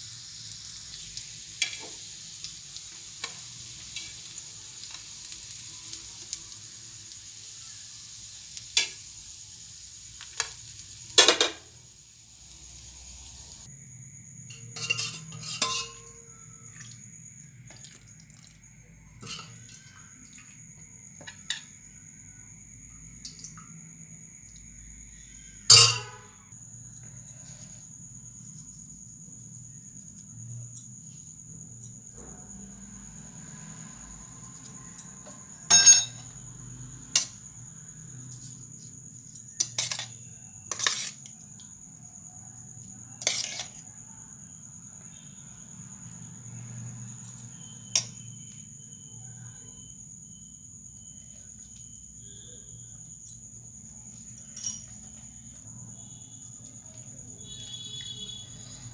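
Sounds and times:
spoon clinking steel bowl: 14.6s - 16.2s, 25.7s - 26.3s, 35.7s - 36.3s.

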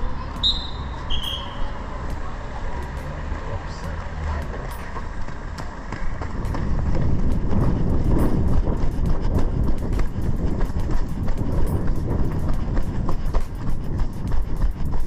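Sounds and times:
running footsteps on pavement: 0.0s - 15.0s
wind rumble on microphone: 0.0s - 15.0s.

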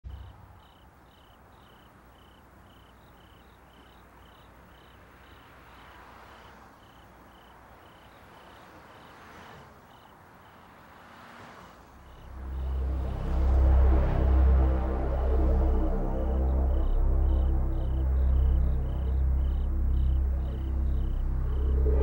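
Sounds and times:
insect chirping: 0.1s - 22.0s
low steady hum: 12.1s - 22.0s.

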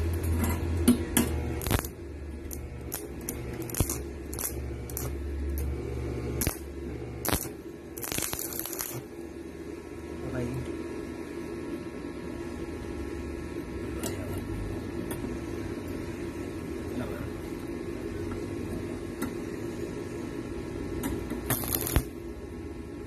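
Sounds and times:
welding arc crackle: 0.0s - 9.2s, 21.3s - 22.2s
welder humming: 0.0s - 22.5s.

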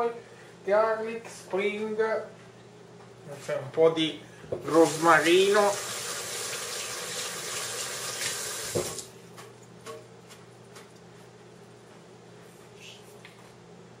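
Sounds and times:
tap running water: 4.6s - 9.1s
tap knock: 8.7s - 9.0s.

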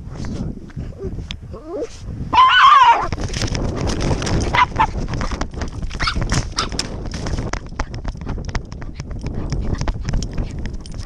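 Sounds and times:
wind buffeting: 0.0s - 11.0s
dog yelps: 1.8s - 3.1s, 6.0s - 6.8s.

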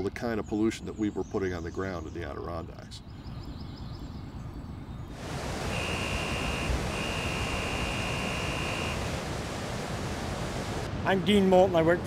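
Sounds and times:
water rushing over spillway: 5.2s - 12.0s
high warning tone: 5.6s - 9.4s.

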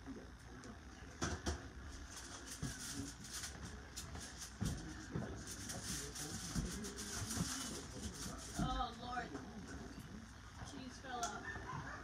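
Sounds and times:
knocks and clatter at oven: 1.2s - 1.7s.

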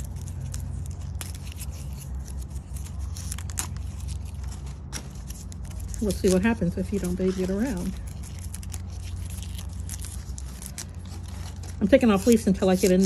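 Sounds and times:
leaves torn off by hand: 0.0s - 13.0s.

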